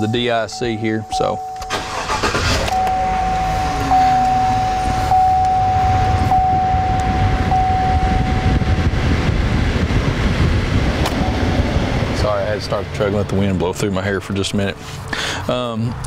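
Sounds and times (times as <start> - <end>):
high chime tone: 0.5 - 1.7, 2.8 - 8.8
engine revving and idling: 1.7 - 13.6.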